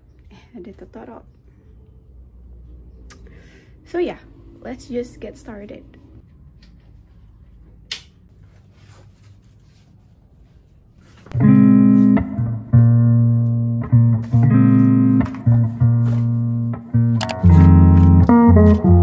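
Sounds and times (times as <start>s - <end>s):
plucked guitar music with bass: 11.3s - 19.0s.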